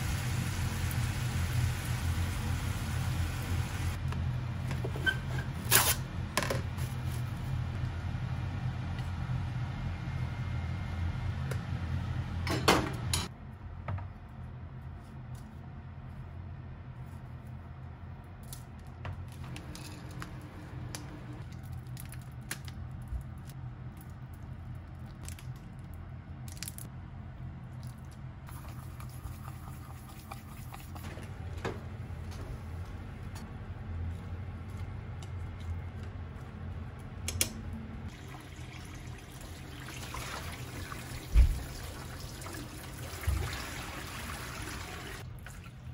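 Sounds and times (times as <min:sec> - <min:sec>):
seasoning trickling into a bowl: 0:28.5 - 0:31.0
tap water running into a pot: 0:38.1 - 0:45.6.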